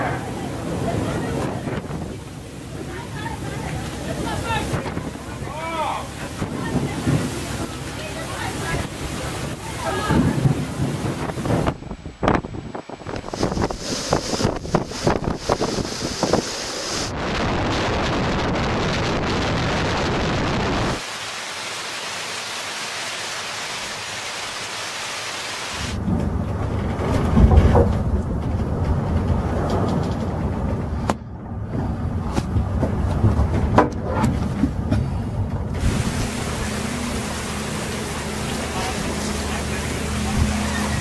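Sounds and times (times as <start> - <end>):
wind buffeting rumble: 0.0 - 21.0, 26.0 - 41.0
rain and spray spattering: 0.0 - 26.0, 35.8 - 41.0
wind and rain hissing: 0.0 - 32.8, 34.8 - 41.0.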